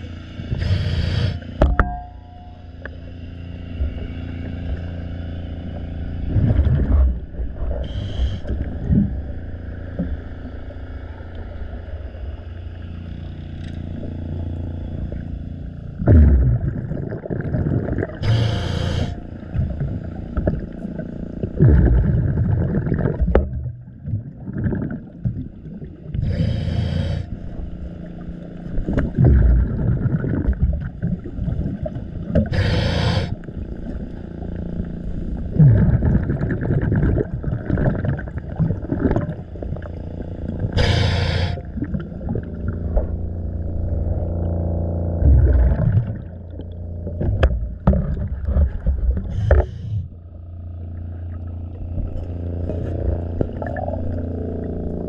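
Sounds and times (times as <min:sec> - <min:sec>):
low drone: 0:00.0 - 0:24.1, 0:24.8 - 0:55.0
underwater exhalation bubbles: 0:06.3 - 0:09.2, 0:16.0 - 0:20.7, 0:21.4 - 0:27.2, 0:28.9 - 0:33.4, 0:35.4 - 0:39.9, 0:40.5 - 0:43.2, 0:45.2 - 0:50.2, 0:52.0 - 0:55.0
regulator hisses: 0:18.2 - 0:19.1, 0:32.5 - 0:33.4, 0:40.8 - 0:41.7.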